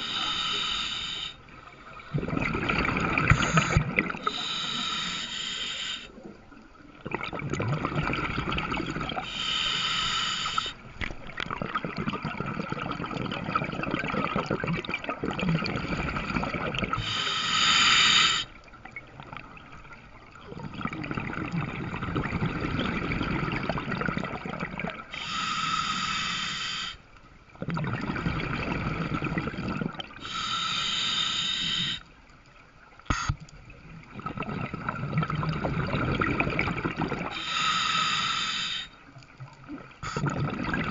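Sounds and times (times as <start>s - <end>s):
regulator hissing inhalations: 0.0s - 1.5s, 3.3s - 6.2s, 9.2s - 10.8s, 17.0s - 18.6s, 25.1s - 27.0s, 30.2s - 32.1s, 37.3s - 39.0s
gurgling exhaled bubbles: 1.9s - 4.7s, 6.2s - 9.3s, 11.1s - 17.2s, 18.8s - 25.2s, 27.6s - 30.3s, 33.3s - 37.7s, 39.5s - 40.9s.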